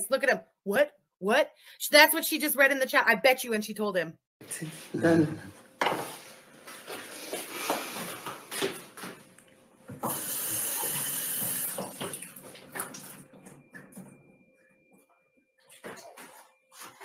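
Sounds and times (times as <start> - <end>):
water tap running: 10.0 - 13.2.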